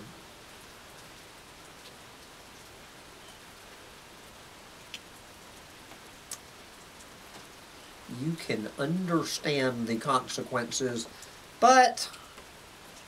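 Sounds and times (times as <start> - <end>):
steady rain hiss: 0.0 - 13.0
faint ticks: 4.9 - 5.1.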